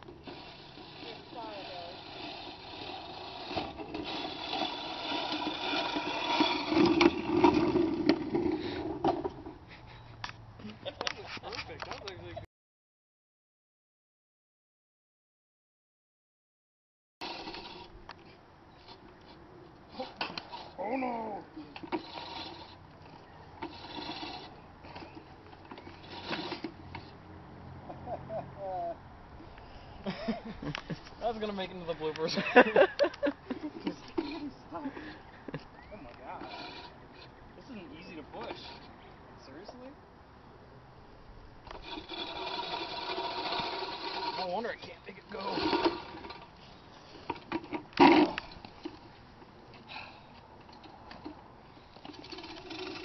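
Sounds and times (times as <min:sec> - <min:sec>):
reel mower blades whirring: 0:00.0 - 0:10.0, 0:17.2 - 0:21.0, 0:21.6 - 0:27.3, 0:30.1 - 0:39.8, 0:41.6 - 0:53.0.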